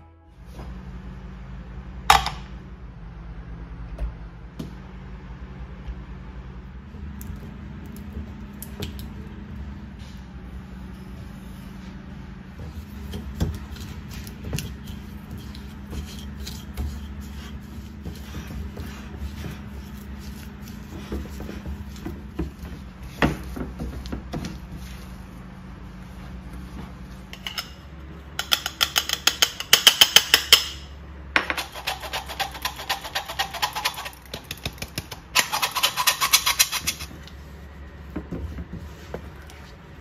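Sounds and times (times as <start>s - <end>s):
spatula scraping glass bowl: 13.6s - 21.8s, 31.6s - 34.3s, 35.4s - 37.1s.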